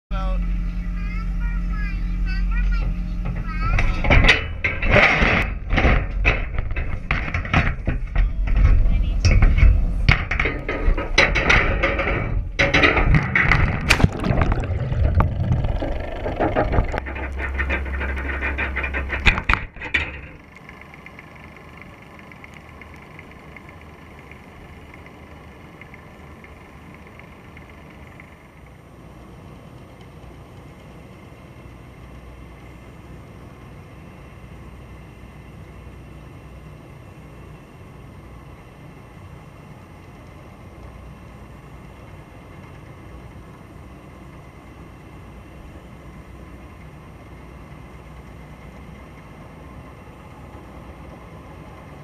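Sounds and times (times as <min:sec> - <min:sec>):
faint steady tones: 0:00.1 - 0:13.4
trap knocking: 0:03.2 - 0:20.4
water splashing: 0:13.8 - 0:16.9.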